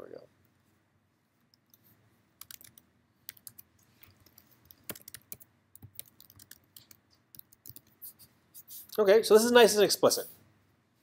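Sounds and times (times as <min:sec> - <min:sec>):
keyboard typing: 0:02.4 - 0:09.0.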